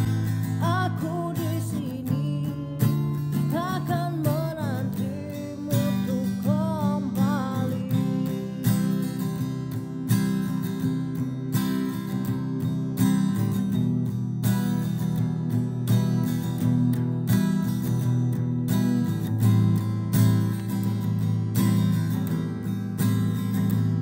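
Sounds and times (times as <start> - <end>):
person singing: 0.0 - 9.7
acoustic guitar strumming: 0.0 - 24.0.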